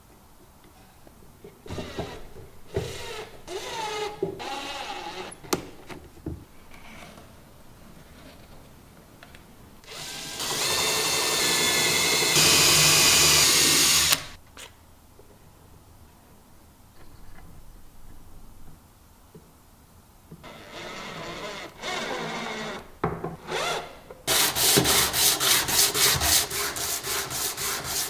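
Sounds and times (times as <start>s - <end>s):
cordless drill drilling into wood: 9.9s - 14.4s, 20.5s - 22.8s.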